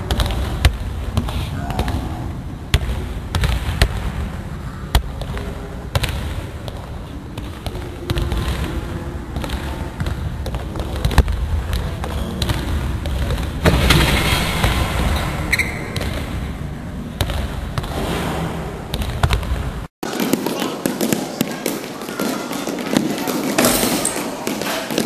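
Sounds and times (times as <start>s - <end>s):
basketball bouncing on wooden floor: 18.9s - 25.0s.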